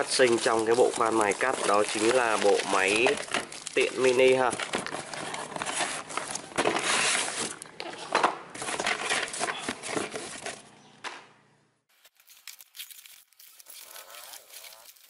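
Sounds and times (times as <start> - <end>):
plastic packaging crinkling: 0.0 - 7.7, 11.9 - 15.0.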